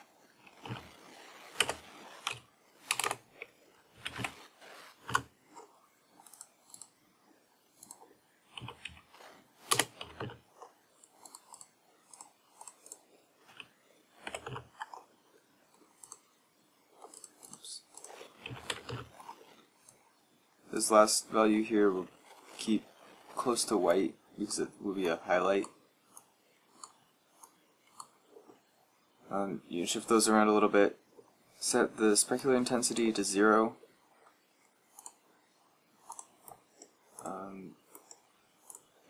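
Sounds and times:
computer keyboard keys tapped: 1.6 - 3.2, 8.6 - 9.0, 9.7 - 10.4, 12.6 - 15.0.

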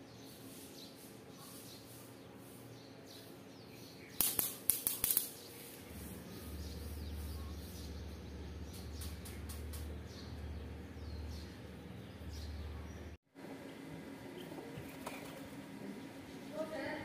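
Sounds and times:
small birds chirping: 0.0 - 17.0
sharp clicks: 4.2 - 5.4
low steady hum: 5.3 - 17.0.

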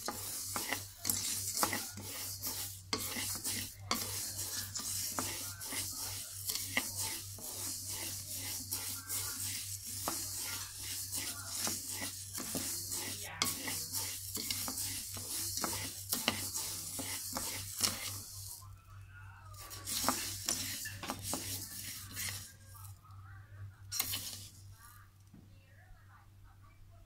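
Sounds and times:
wooden paddle clicking on pan: 0.0 - 18.3
rice grains rustling in a wok: 0.0 - 23.2, 23.8 - 25.1.

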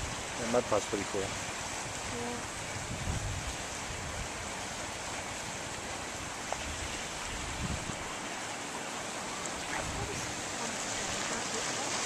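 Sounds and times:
wind buffeting microphone: 1.2 - 4.8, 6.1 - 8.1, 9.6 - 11.7.

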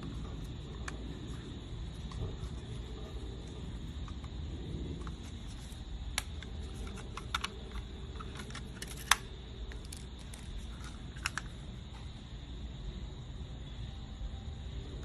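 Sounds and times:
low rumbling background: 0.0 - 8.6
plastic clicks and snaps: 6.1 - 11.5.

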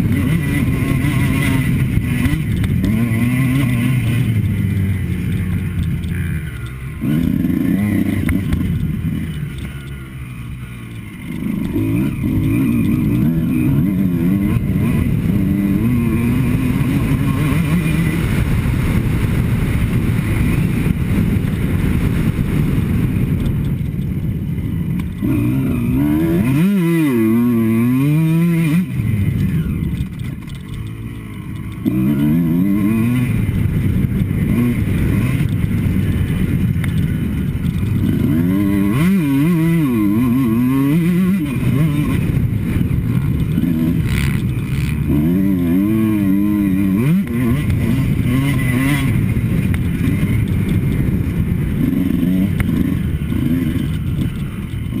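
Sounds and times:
motocross bike engine revving: 0.0 - 55.0
wind rush over helmet: 18.0 - 26.5.

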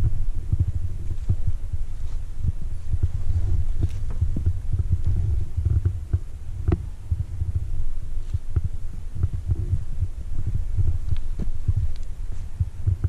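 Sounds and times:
wind buffeting microphone: 0.0 - 13.0
faint clicks: 11.1 - 12.2.

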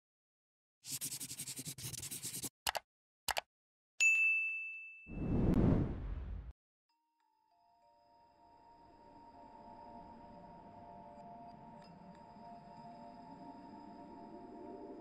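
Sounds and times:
notification bell ding: 4.0 - 5.1
low rushing whoosh: 5.1 - 6.5.

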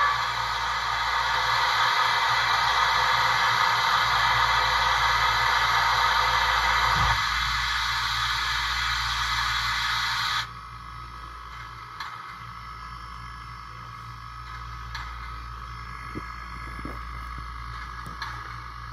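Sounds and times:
loud steam hiss: 0.0 - 10.5
locomotive idle with whine: 0.0 - 18.9
low hum: 0.0 - 18.9.

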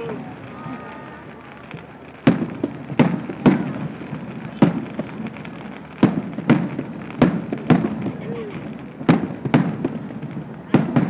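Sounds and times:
firework shells bursting: 0.0 - 11.0.

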